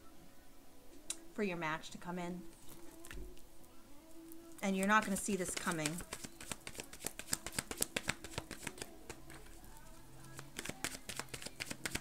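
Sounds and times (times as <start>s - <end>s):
cards being shuffled: 4.8s - 12.0s.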